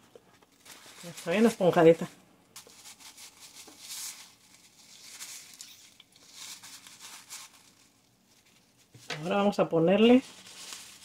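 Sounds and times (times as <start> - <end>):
paper towel rustling: 0.4 - 11.0.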